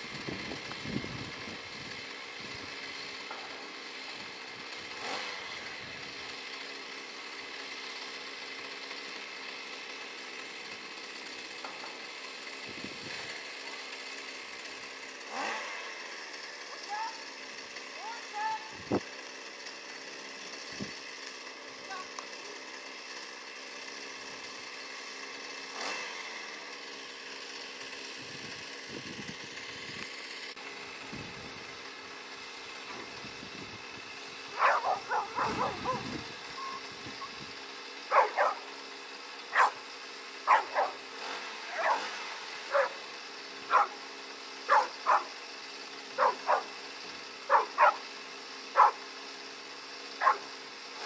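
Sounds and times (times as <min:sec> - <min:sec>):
dog barking: 0:34.6 - 0:36.2, 0:38.1 - 0:38.6, 0:39.6 - 0:39.8, 0:40.5 - 0:41.0, 0:41.7 - 0:42.0, 0:42.7 - 0:43.0, 0:43.7 - 0:44.0, 0:44.7 - 0:45.3, 0:46.2 - 0:46.7, 0:47.5 - 0:48.0, 0:48.8 - 0:49.0, 0:50.2 - 0:50.5.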